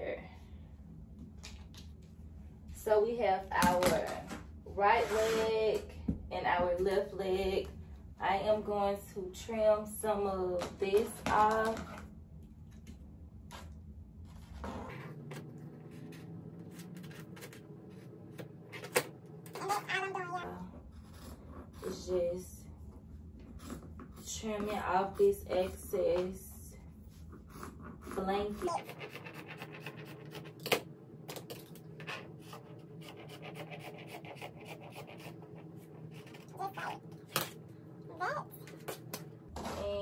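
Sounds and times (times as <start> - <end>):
faint low hum: 0.0 - 40.0.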